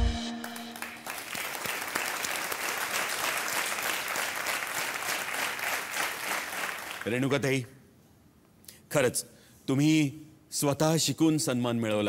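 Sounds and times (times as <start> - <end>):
closing music: 0.0 - 1.4
audience applauding: 0.4 - 7.3.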